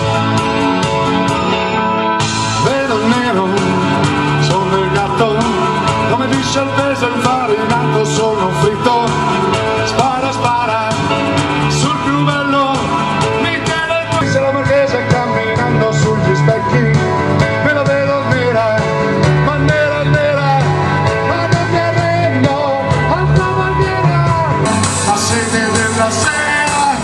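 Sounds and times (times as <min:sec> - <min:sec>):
bass: 0:00.0 - 0:27.0
electronic keyboard melody: 0:00.0 - 0:27.0.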